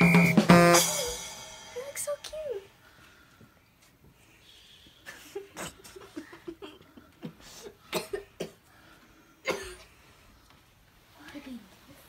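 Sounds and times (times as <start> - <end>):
children suppressed giggling: 4.9 - 7.8.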